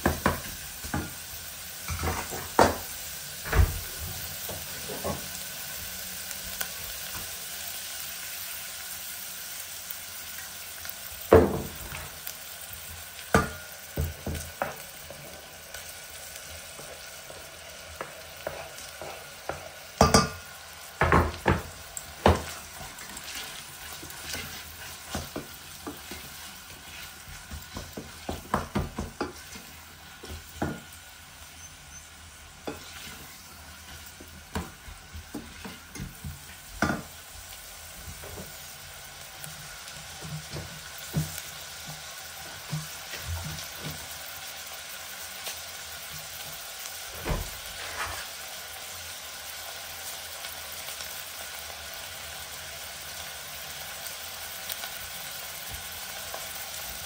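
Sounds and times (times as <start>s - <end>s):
meat sizzling in a pot: 0.0s - 57.0s
wooden spoon scraping a pot: 18.0s - 19.8s, 22.4s - 30.4s, 31.6s - 34.0s, 35.2s - 36.6s, 47.7s - 48.4s.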